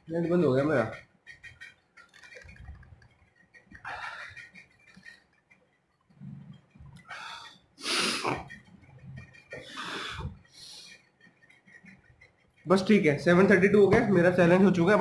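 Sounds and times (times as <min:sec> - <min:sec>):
man breathing forcefully and snorting: 0:07.1 - 0:08.6.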